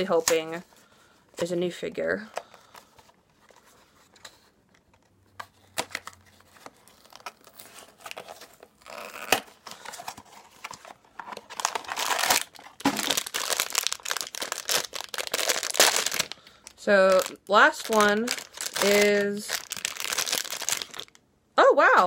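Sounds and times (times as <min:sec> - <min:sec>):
foil bag crinkling and tearing: 0:11.2 - 0:21.2.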